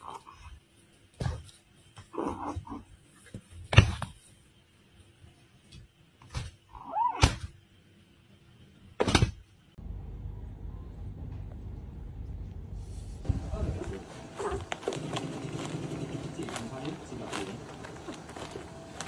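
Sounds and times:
low background rumble: 9.8s - 14.9s.

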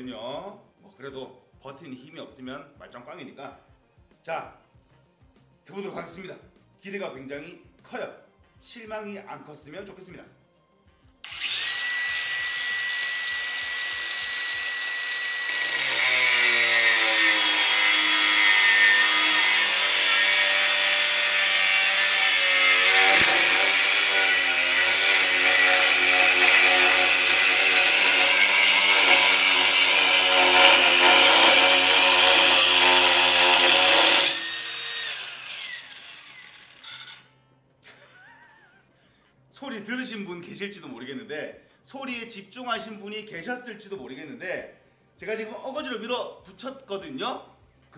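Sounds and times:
angle grinder whine: 11.2s - 37.2s
grinder cutting steel: 11.2s - 37.3s.

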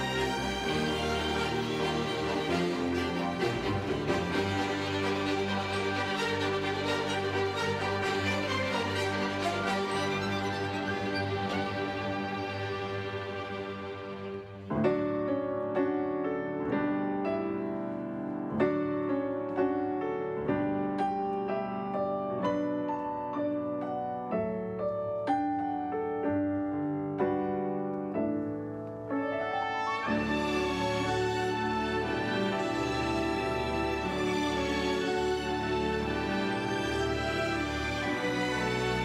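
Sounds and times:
orchestra sustained tones: 0.0s - 14.7s, 29.2s - 39.0s
solo piano melody: 0.0s - 39.0s.

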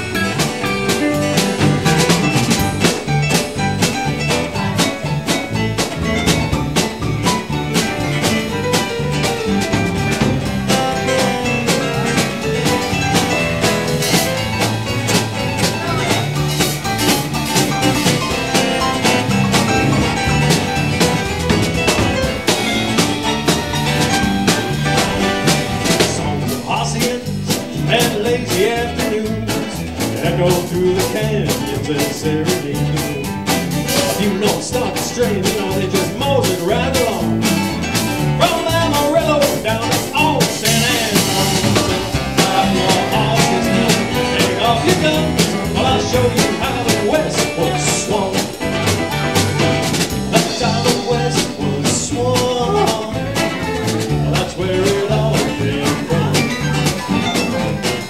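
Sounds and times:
live country band playing: 0.0s - 58.0s
steady drum beat: 0.0s - 58.0s.

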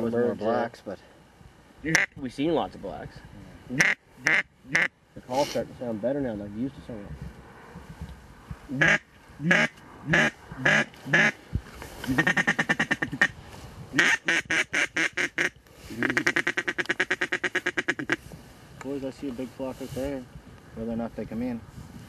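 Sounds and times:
duck call quacks: 1.9s - 2.2s, 3.7s - 4.9s, 8.7s - 11.4s, 12.1s - 13.4s, 14.0s - 18.2s.

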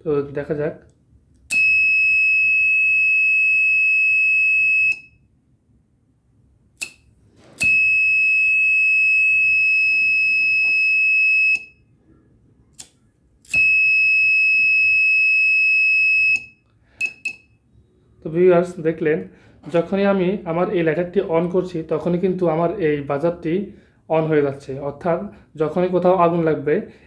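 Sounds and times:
fire alarm beeping: 1.5s - 5.3s, 7.6s - 12.0s, 13.5s - 17.7s
short clicks: 6.8s - 7.7s, 12.7s - 13.6s.

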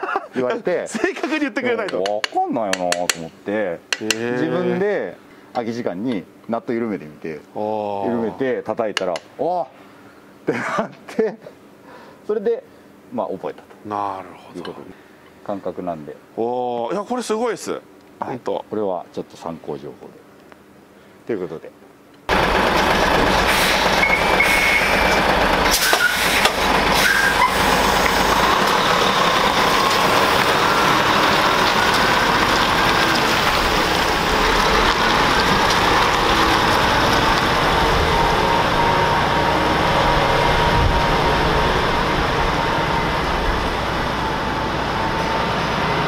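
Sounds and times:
diesel truck engine pulling away: 22.3s - 46.0s.

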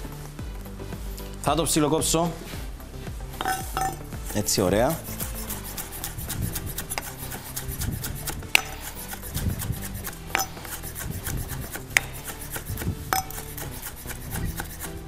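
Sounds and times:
knife chopping on wooden board: 3.4s - 15.0s.

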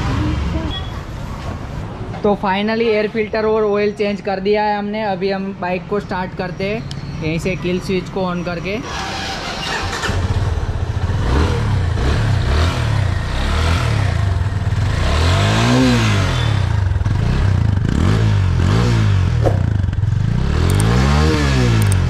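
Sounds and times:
motorcycle engine starting and idling: 8.8s - 14.9s.

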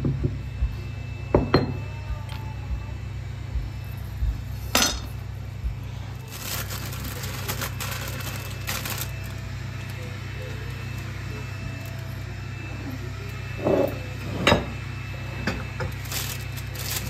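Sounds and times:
steady low hum: 0.0s - 17.0s
dishes clinking on counter: 1.4s - 1.8s, 13.6s - 14.8s
plastic bag crinkling: 6.1s - 10.5s, 15.9s - 17.0s.

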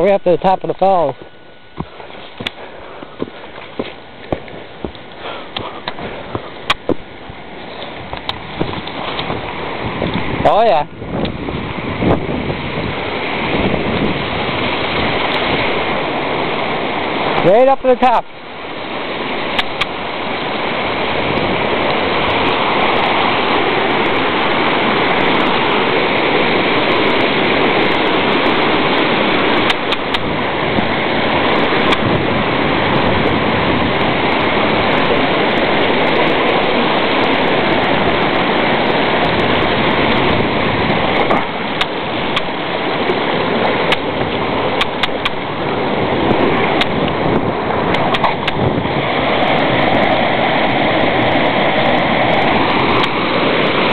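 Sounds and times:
waterfall rushing: 0.0s - 53.9s
scattered clicks: 43.9s - 44.1s, 44.8s - 45.4s.

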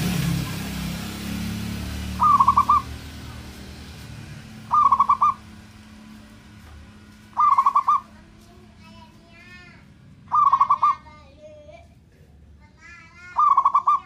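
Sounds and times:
dove cooing: 2.1s - 3.0s, 4.6s - 5.6s, 7.4s - 8.2s, 10.3s - 11.0s, 13.3s - 14.0s.

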